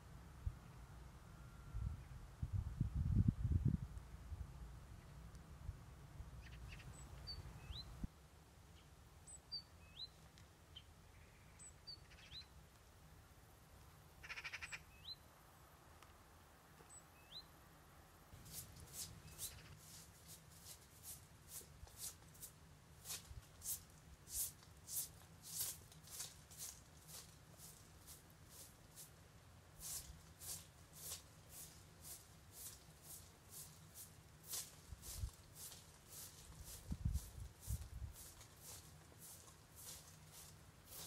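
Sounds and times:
bird chirps: 6.4s - 8.1s, 8.8s - 12.6s, 14.2s - 15.2s, 16.8s - 17.5s
broom sweeping ground: 18.3s - 41.0s.

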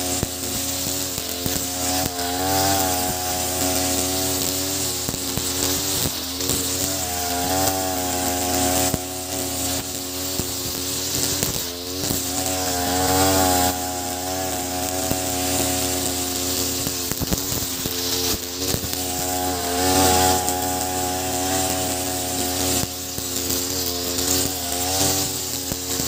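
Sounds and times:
brush cutter running at high revs: 0.0s - 26.0s.

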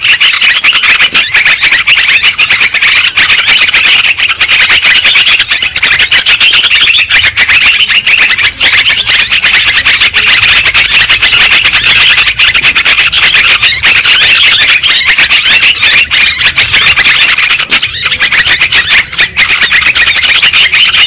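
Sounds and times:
bulbuls chattering chorus: 0.0s - 21.0s.

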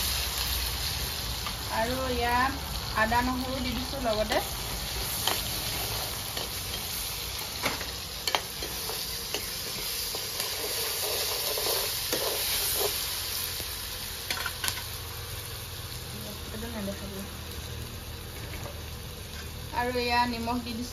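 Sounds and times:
food sizzling in hot oil: 0.0s - 20.9s
metal ladle scraping a wok: 4.3s - 13.3s.

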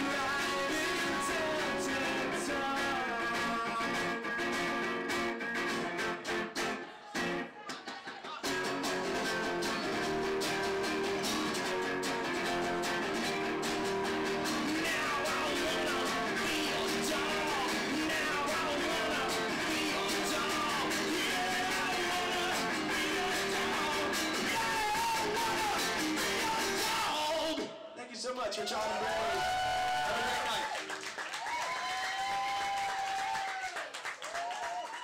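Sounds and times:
man singing: 0.0s - 5.1s, 14.5s - 30.7s
acoustic guitars strumming: 0.0s - 7.5s, 8.4s - 27.7s.

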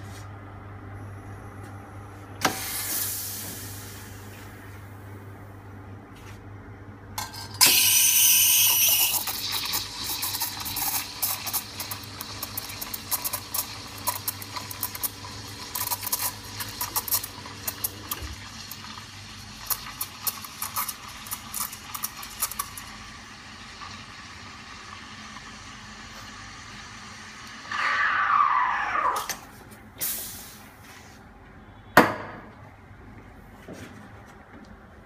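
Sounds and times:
milk crackling and sputtering: 8.7s - 23.0s.

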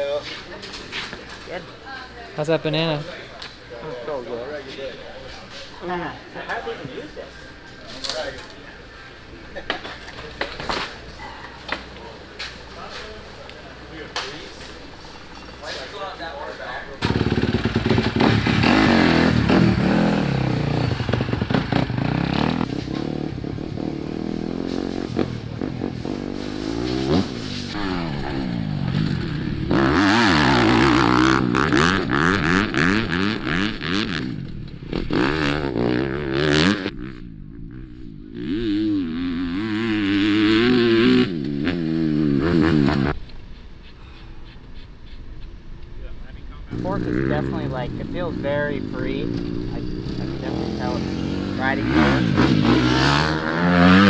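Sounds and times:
motocross bike engine revving: 17.0s - 43.2s, 46.6s - 54.0s.

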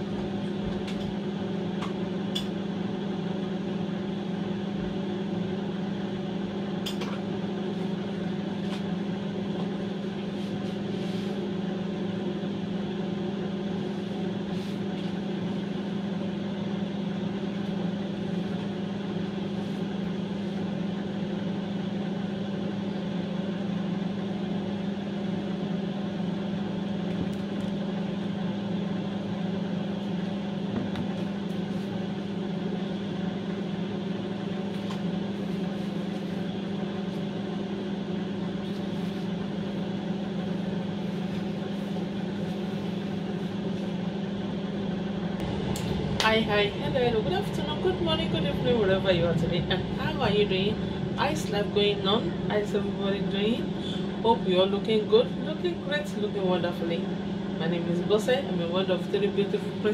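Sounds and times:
mechanical hum: 0.0s - 59.9s.

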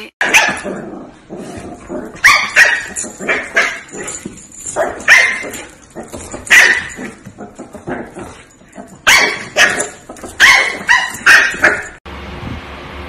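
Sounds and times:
dog barking: 0.2s - 0.8s, 2.2s - 4.1s, 4.7s - 12.0s.

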